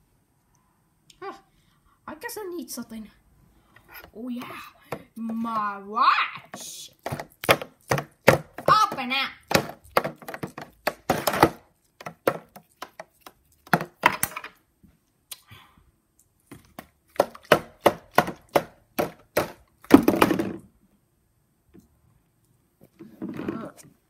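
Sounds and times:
knocks on plastic container: 7.0 - 12.5.

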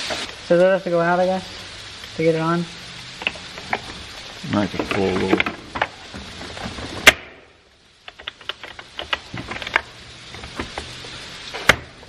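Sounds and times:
chainsaw parts clicking and tapping: 8.1 - 9.8.

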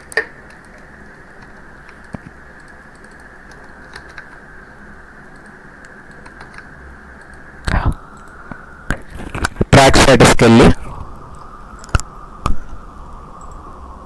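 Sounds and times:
computer keyboard clicks: 0.0 - 4.4, 5.3 - 8.4
steady low hiss: 0.0 - 14.0.

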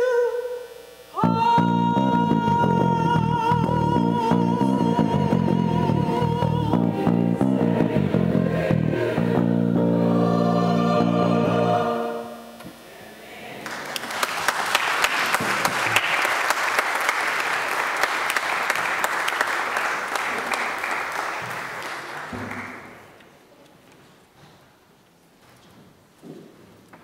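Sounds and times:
choir with piano and bass: 1.2 - 13.6
congregation applauding: 13.6 - 23.2.

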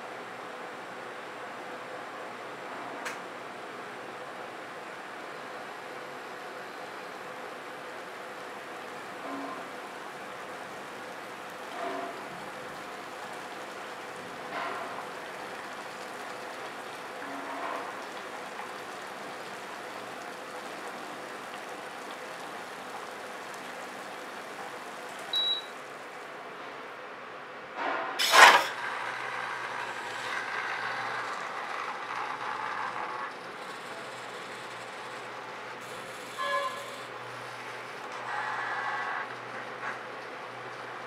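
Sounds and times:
pot of water simmering: 5.6 - 26.3
short high beep: 25.4 - 25.7.

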